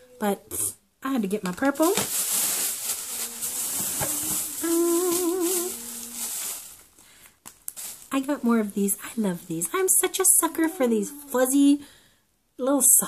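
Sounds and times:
rustling of packaging: 1.2 - 9.1
woman humming: 3.1 - 6.4, 10.1 - 11.8.

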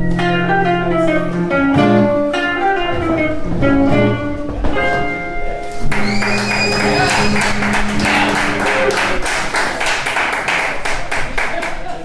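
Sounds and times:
jazz guitars playing blues: 0.0 - 9.7
audience voices: 4.4 - 12.0
audience clapping: 5.9 - 12.0.

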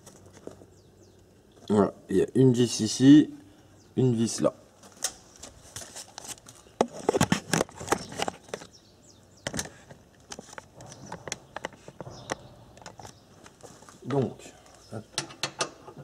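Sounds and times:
hard objects clicking and knocking: 9.4 - 13.2, 15.2 - 16.0.

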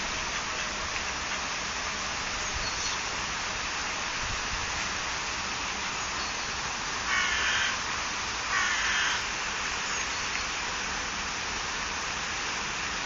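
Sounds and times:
steady rushing noise: 0.0 - 13.0
harsh caw-like bird call: 7.1 - 7.8, 8.5 - 9.3.

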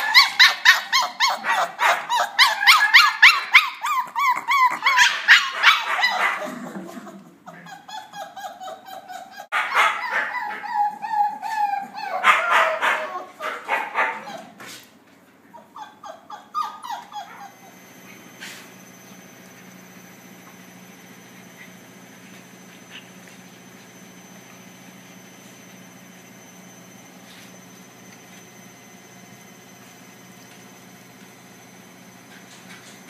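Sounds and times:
puppies yipping and howling: 0.0 - 6.5, 7.5 - 14.5, 15.6 - 18.3.

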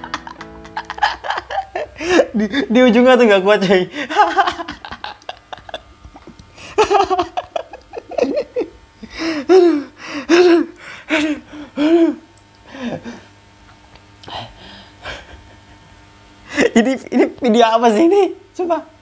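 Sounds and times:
person laughing: 0.0 - 2.9, 3.6 - 13.2, 15.0 - 17.2.

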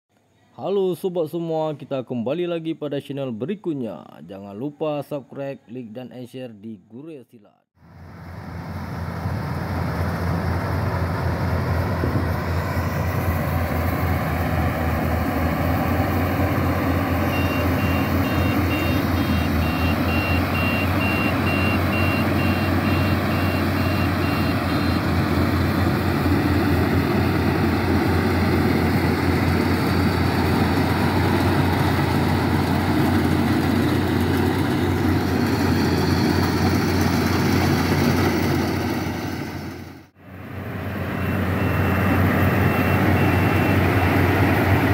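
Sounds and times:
combine harvester engine droning: 7.8 - 44.9
high beeps: 17.2 - 25.1.

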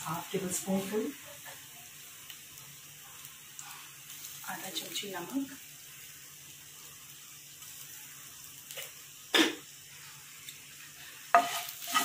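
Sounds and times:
food sizzling in a frying pan: 0.0 - 12.0
spatula scraping a pan: 10.9 - 12.0.

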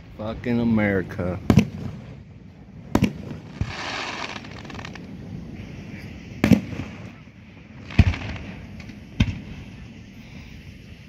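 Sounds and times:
firework crackling hiss: 0.6 - 11.0
firework bang: 2.9 - 9.8.

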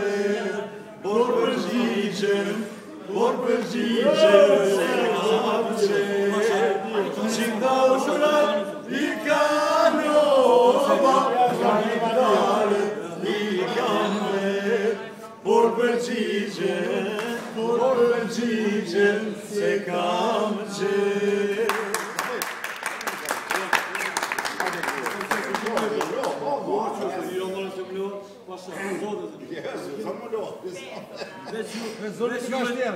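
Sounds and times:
men singing chant: 0.0 - 22.2.

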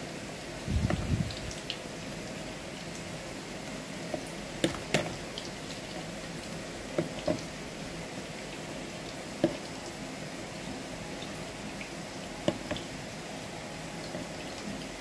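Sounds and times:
fork tapping plastic bowl: 4.6 - 5.2, 9.4 - 9.6, 12.4 - 12.9.

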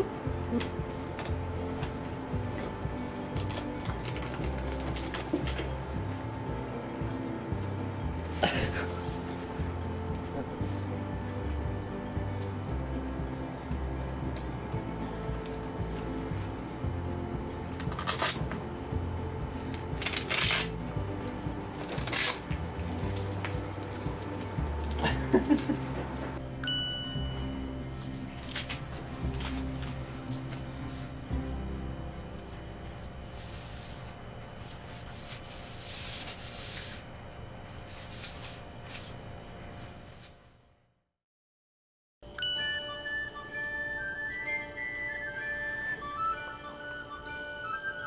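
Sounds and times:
background music: 0.0 - 36.9, 42.3 - 48.0
scrubbing a wooden floor: 33.3 - 37.2, 37.8 - 39.2.

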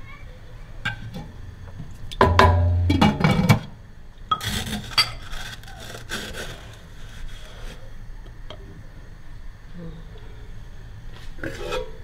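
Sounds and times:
wooden spoon scraping pot: 4.3 - 7.8.

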